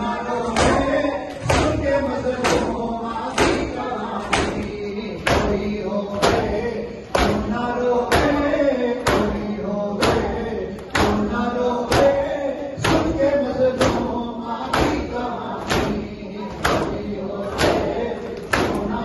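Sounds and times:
men chanting: 0.0s - 19.0s
hands slapping chests: 16.6s - 19.0s.

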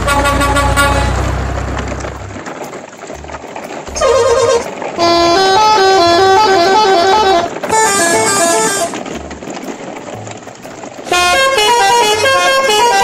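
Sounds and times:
musical multi-tone vehicle horn: 0.0s - 2.2s, 3.9s - 9.7s, 11.0s - 13.0s.

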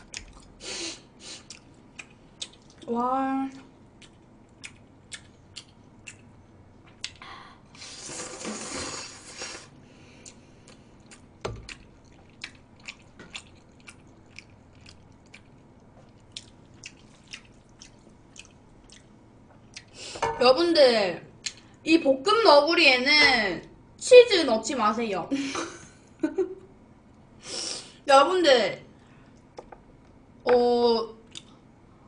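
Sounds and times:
chewing with wet mouth clicks: 0.0s - 0.5s, 1.4s - 2.9s, 3.5s - 7.2s, 10.2s - 19.9s, 31.2s - 31.6s.

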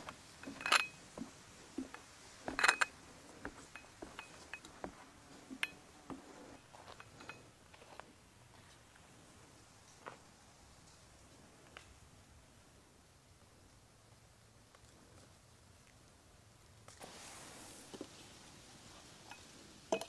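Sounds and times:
glassware clinking: 0.4s - 1.0s, 19.3s - 20.0s.

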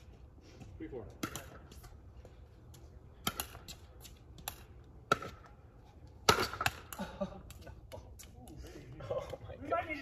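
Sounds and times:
ball bouncing on hard court: 4.4s - 5.5s.

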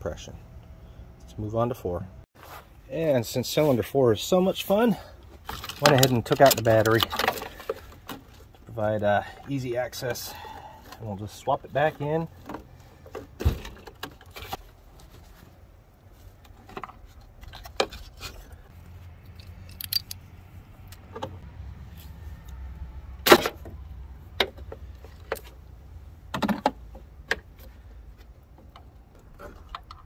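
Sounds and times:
metallic clinks of socket ratchet: 19.4s - 20.2s.

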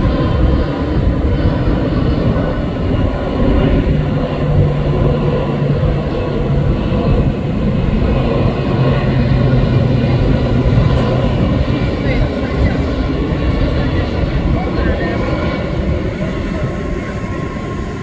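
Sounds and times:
jet engines passing overhead: 0.0s - 18.0s.

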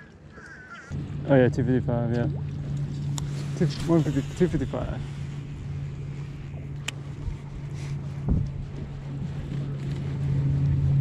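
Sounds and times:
boat motor humming: 0.0s - 11.0s
wind on microphone: 3.1s - 11.0s.

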